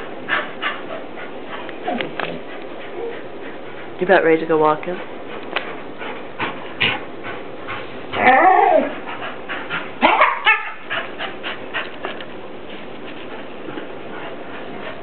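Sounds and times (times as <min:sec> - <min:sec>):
dog whining: 0:01.8 - 0:03.3, 0:08.1 - 0:09.0, 0:10.0 - 0:10.8.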